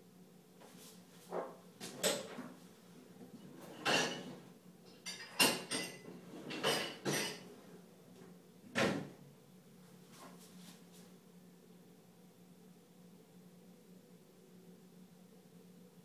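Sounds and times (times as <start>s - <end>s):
dishes clattering: 3.4s - 7.5s.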